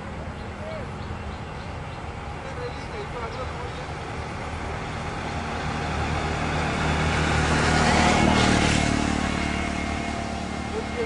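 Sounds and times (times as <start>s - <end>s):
vehicle engine hum: 0.0s - 11.0s.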